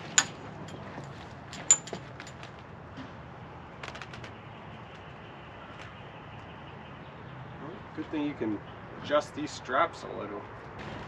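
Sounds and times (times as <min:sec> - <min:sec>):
metallic clicks and clinks: 0:00.0 - 0:02.4.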